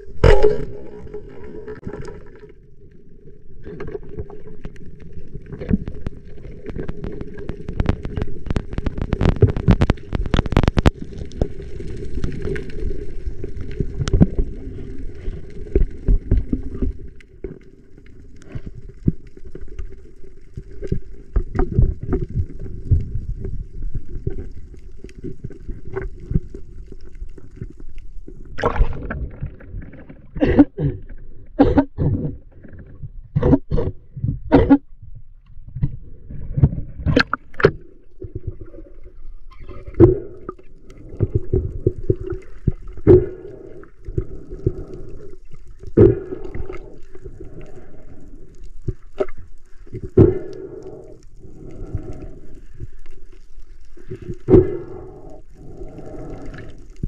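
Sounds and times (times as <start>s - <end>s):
muffled water gurgling and sloshing: 0.0s - 57.0s.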